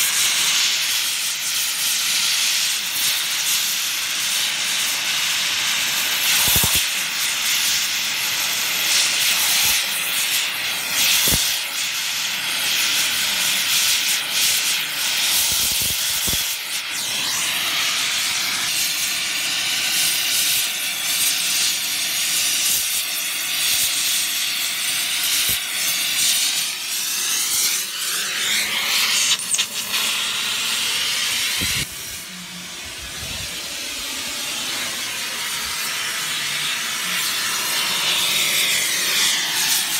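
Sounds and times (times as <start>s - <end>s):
torch flame hissing: 0.0s - 39.9s.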